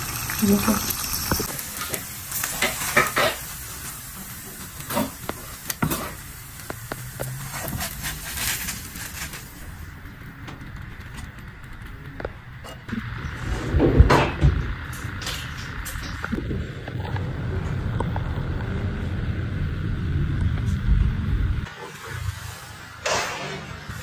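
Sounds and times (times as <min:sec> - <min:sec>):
eggs sizzling in a frying pan: 0:00.0 - 0:11.8.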